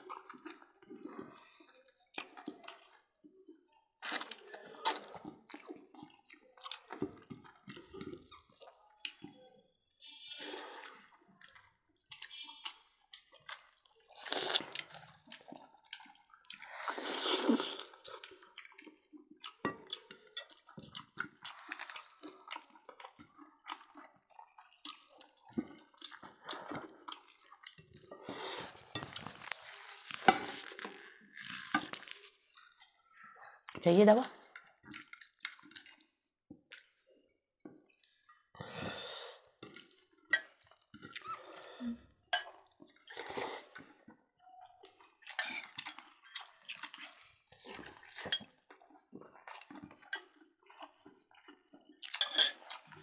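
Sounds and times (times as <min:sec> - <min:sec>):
wet chewing and lip smacks: 0:00.0 - 0:01.2, 0:02.1 - 0:03.2, 0:04.0 - 0:09.3, 0:11.2 - 0:29.7, 0:34.5 - 0:37.0, 0:43.7 - 0:53.0.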